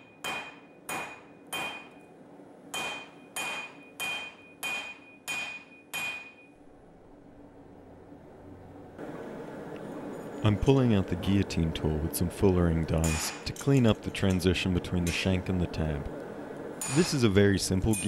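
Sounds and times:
anvil ringing: 0.0s - 2.0s, 2.8s - 6.6s, 16.8s - 17.3s
hammer striking hot steel on anvil: 0.0s - 2.1s, 2.7s - 6.6s, 13.0s - 15.3s, 16.8s - 18.0s.

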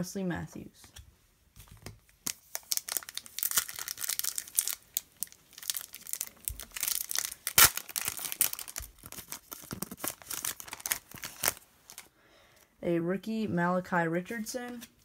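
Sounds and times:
foil wrapper crinkling: 2.2s - 12.1s.

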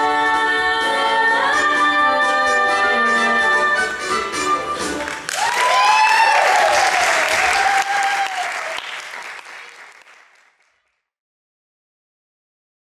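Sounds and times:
audience applauding and cheering: 4.8s - 10.8s.

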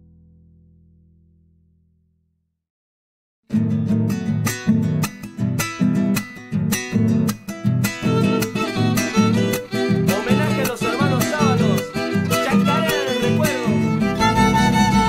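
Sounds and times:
acoustic guitar strumming: 3.5s - 15.0s
low instrumental part: 8.0s - 15.0s
violin melody: 8.0s - 15.0s.

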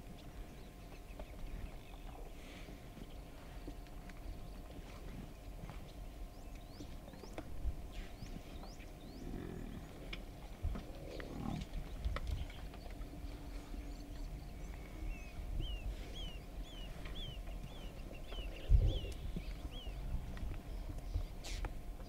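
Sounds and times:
buffalo herd knocks and rumbling: 0.0s - 22.0s
buffalo low calls: 9.1s - 10.1s, 10.7s - 12.0s.

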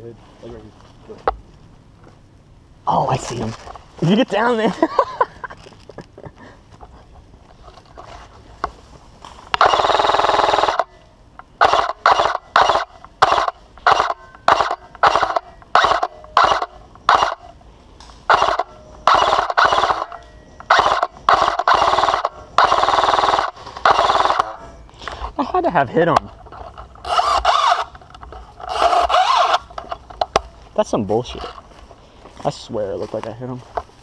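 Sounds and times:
airsoft rifle firing in bursts: 9.6s - 10.9s, 11.6s - 17.4s, 18.3s - 24.6s.

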